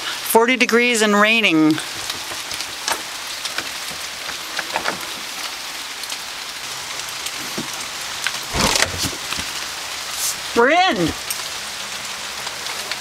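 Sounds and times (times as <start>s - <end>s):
rain hissing: 0.0s - 13.0s
door thumping open: 8.5s - 9.5s.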